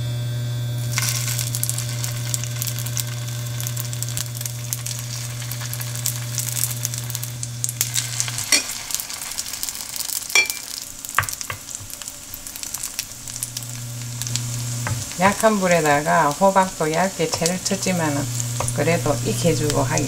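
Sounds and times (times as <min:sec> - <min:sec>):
steady low hum: 0:00.0 - 0:20.0
batter sizzling in oil: 0:00.4 - 0:20.0
utensil knocking on pan: 0:11.2 - 0:12.0.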